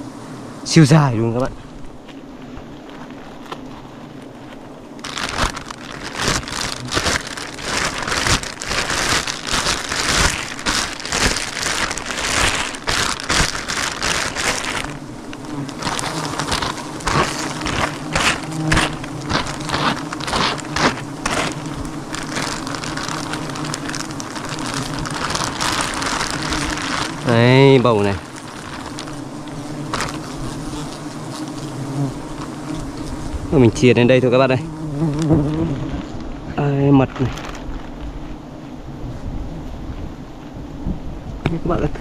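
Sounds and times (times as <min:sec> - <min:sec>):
bees buzzing: 0:00.0 - 0:40.3
crackles and rustles of comb: 0:02.8 - 0:33.2, 0:37.0 - 0:38.3.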